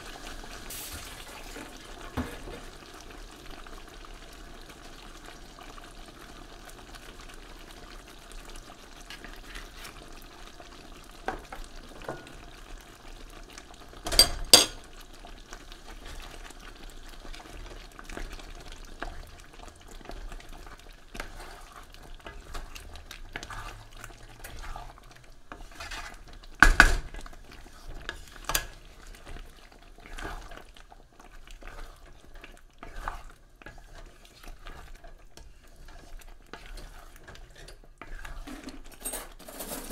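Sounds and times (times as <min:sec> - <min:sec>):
stew sizzling in a pan: 0:00.0 - 0:39.9
spoon scraping and clacking pan: 0:09.0 - 0:10.0, 0:11.3 - 0:12.4, 0:14.0 - 0:15.0, 0:20.0 - 0:39.9.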